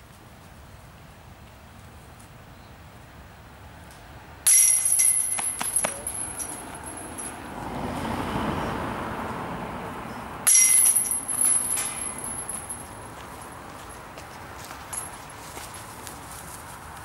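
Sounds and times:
chains of disc golf basket jangling: 0:04.5 - 0:07.4, 0:10.5 - 0:13.2, 0:13.8 - 0:15.8
light chain clinks: 0:04.5 - 0:07.4, 0:10.5 - 0:13.1, 0:14.8 - 0:15.4.

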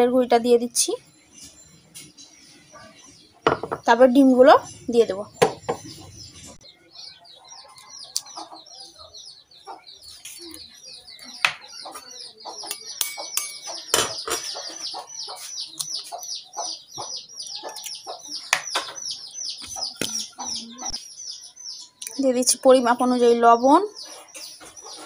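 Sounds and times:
birds chirping rapidly: 0:00.0 - 0:25.0.

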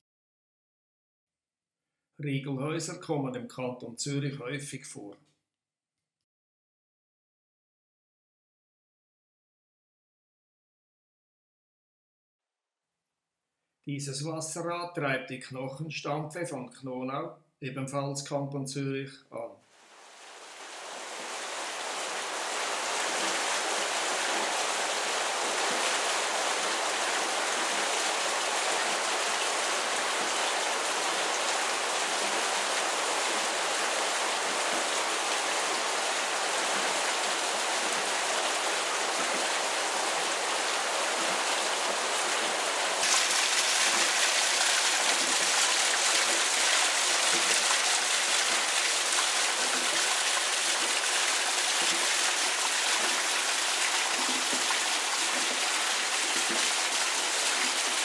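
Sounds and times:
water rushing at a water wheel: 0:19.8 - 0:58.0.

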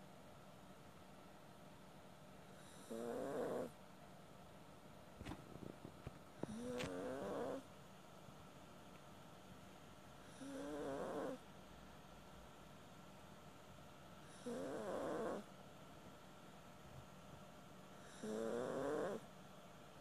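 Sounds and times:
dog snoring: 0:02.5 - 0:03.8, 0:06.4 - 0:07.7, 0:10.2 - 0:11.4, 0:14.2 - 0:15.5, 0:18.0 - 0:19.3.

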